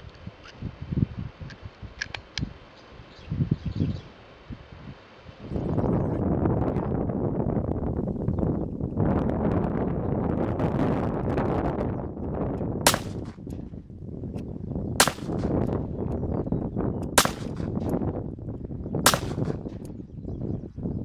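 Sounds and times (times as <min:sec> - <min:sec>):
pistol shots: 0:12.9 - 0:13.4, 0:15.0 - 0:15.7, 0:17.2 - 0:17.9, 0:19.0 - 0:19.8.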